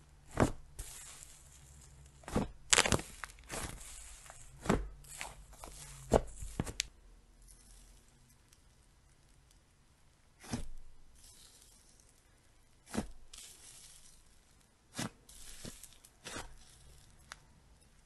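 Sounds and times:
slime crackling hiss: 0.8s - 6.7s
slime popping: 0.8s - 6.9s.

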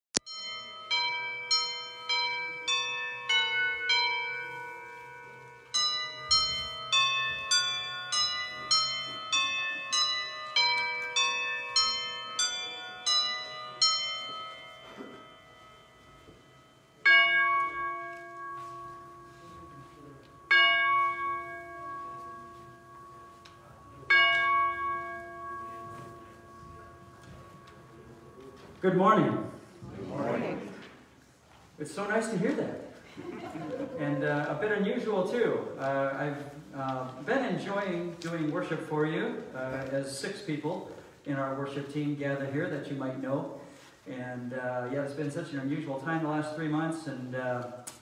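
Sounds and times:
single bell tolling: 0.2s - 28.7s
church bells ringing: 0.2s - 29.6s.

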